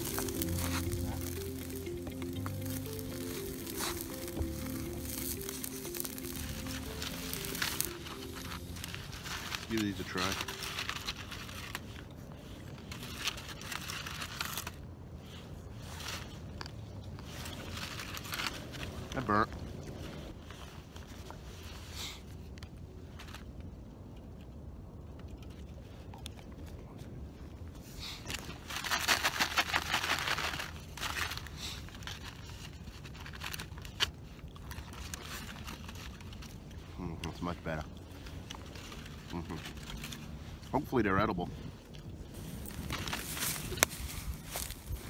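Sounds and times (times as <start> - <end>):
aluminium foil crinkling and tearing: 0.0 - 16.4, 17.2 - 19.5, 28.0 - 45.0.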